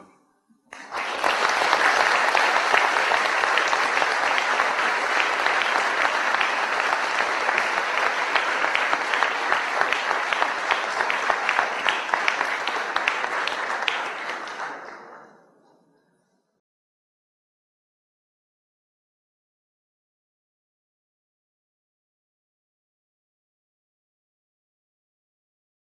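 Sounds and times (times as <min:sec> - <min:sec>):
audience applauding: 0:00.7 - 0:15.5.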